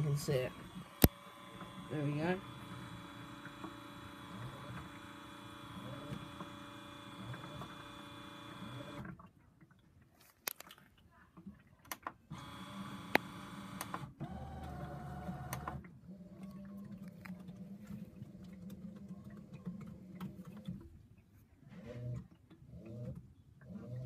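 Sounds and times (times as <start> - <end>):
washing machine motor humming: 0.0 - 9.1, 12.3 - 21.0.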